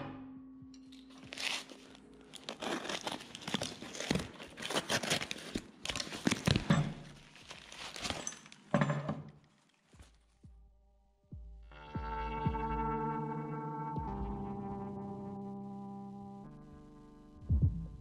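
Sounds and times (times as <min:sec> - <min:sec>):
paper and tape ripping: 0:01.0 - 0:08.5
knife cutting cardboard: 0:01.2 - 0:06.6.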